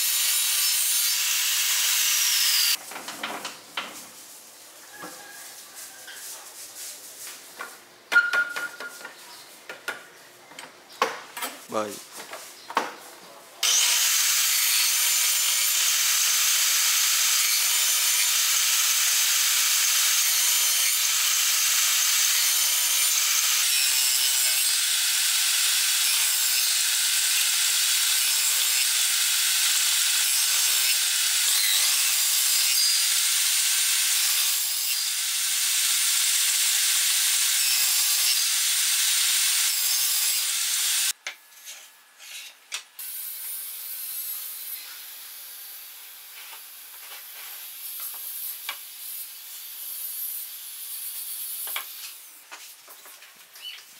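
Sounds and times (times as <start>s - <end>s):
table saw cutting wood: 0.0s - 2.8s, 13.6s - 41.2s, 42.2s - 52.2s.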